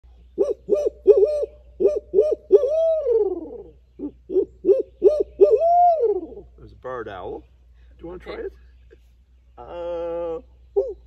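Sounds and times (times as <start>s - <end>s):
man imitating owl hoots: 0.4s - 6.6s, 9.6s - 11.0s.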